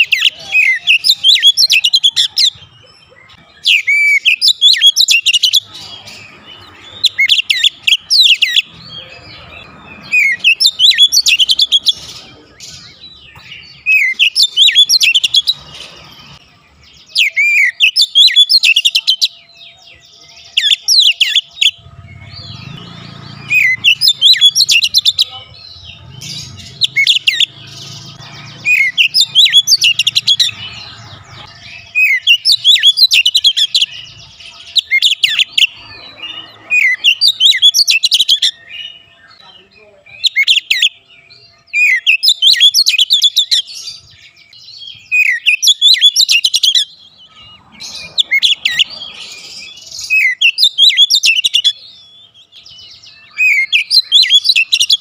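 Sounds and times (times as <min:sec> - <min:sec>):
bird singing whistled phrases: 0:00.0 - 0:02.6, 0:13.7 - 0:15.6, 0:17.0 - 0:19.5, 0:31.8 - 0:34.0, 0:40.1 - 0:41.0, 0:44.9 - 0:46.9, 0:49.6 - 0:52.2, 0:52.8 - 0:55.0.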